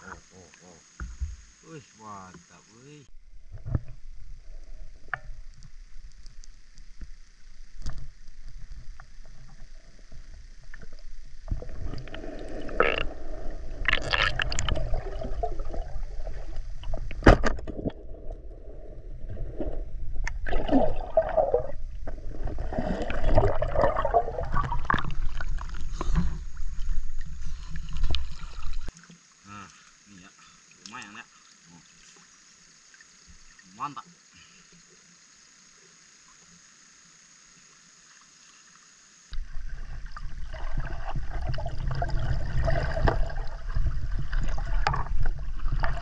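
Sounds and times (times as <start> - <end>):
water gurgling and sloshing: 3.1 - 34.6, 37.9 - 46.0.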